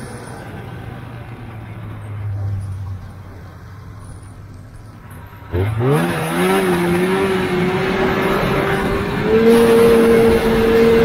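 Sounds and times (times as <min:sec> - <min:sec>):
snowmobile engine at high revs: 0:05.4 - 0:11.0.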